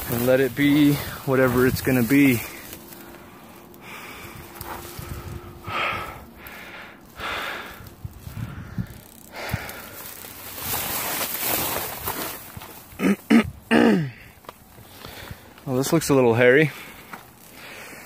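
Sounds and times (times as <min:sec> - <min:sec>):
person breathing hard: 0:02.5 - 0:10.2, 0:13.8 - 0:15.6, 0:16.7 - 0:18.0.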